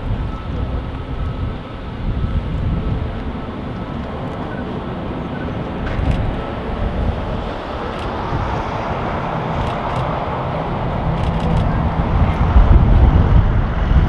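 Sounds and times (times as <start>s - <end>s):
jet engine rumble: 0.0s - 14.0s.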